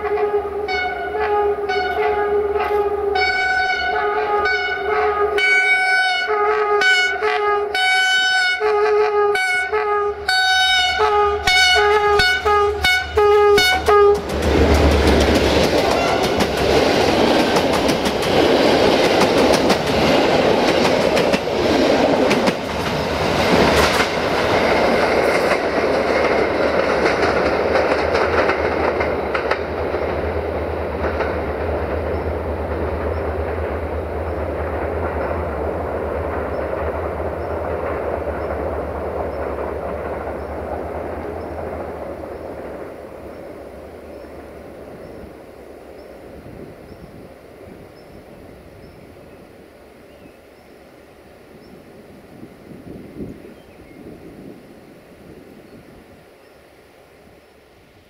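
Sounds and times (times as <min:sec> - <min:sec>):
diesel locomotive horn blasts: 0:00.0 - 0:14.3, 0:15.9 - 0:16.6
locomotive engine rumble: 0:09.8 - 0:47.1
train wheels clacking on rails: 0:11.0 - 0:44.4.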